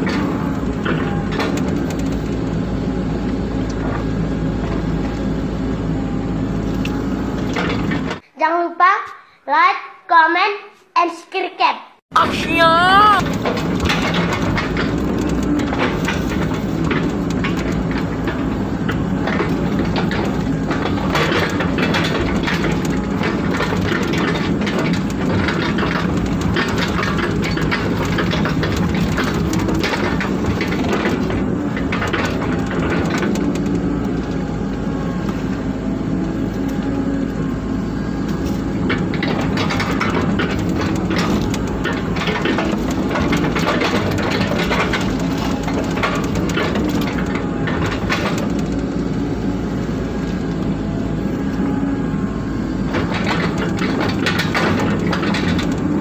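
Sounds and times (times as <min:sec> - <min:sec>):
excavator diesel engine running: 0:00.0 - 0:08.2, 0:12.2 - 0:56.0
bucket clanks and rattles: 0:38.9 - 0:48.7.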